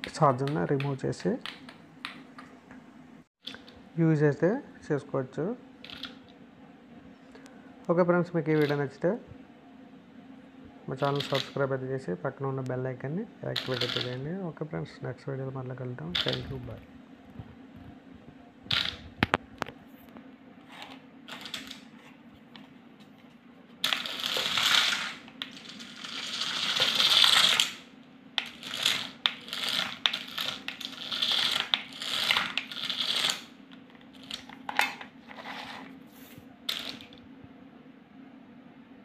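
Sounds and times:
toy car motors whirring: 0:23.8 - 0:27.8, 0:28.4 - 0:33.5.

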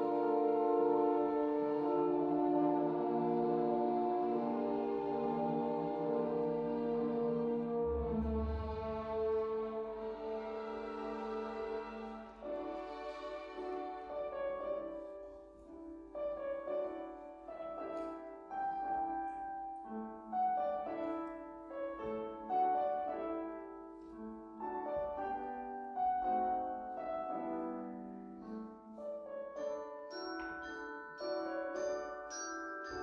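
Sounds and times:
orchestra with piano: 0:00.0 - 0:33.0
mallet percussion notes: 0:29.6 - 0:33.0.

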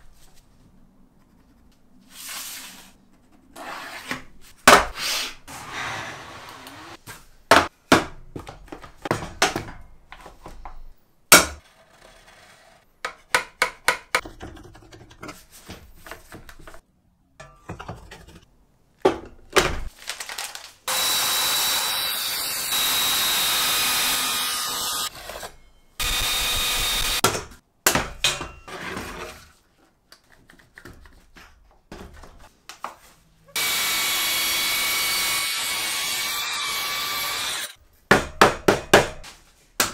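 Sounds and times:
circular saw cutting board: 0:05.0 - 0:07.0, 0:20.9 - 0:27.2, 0:33.6 - 0:37.8.

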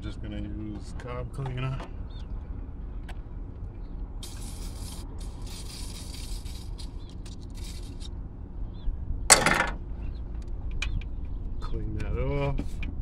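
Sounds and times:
aerosol spray hissing: 0:04.2 - 0:06.9.

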